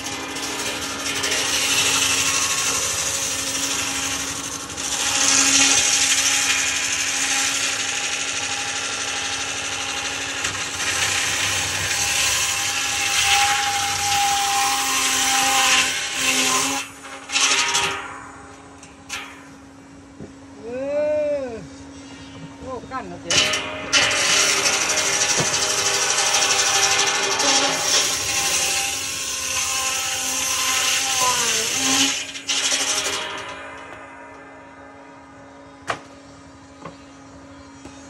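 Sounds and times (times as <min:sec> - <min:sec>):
bandsaw cutting wood: 0:00.0 - 0:18.2, 0:23.3 - 0:34.0
machine hum: 0:00.0 - 0:38.0.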